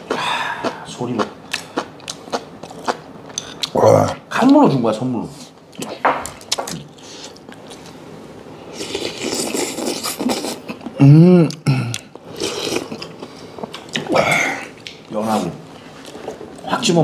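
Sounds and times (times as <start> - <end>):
slurping and chewing: 0.0 - 4.2, 8.7 - 15.0
man humming with relish: 10.9 - 12.0.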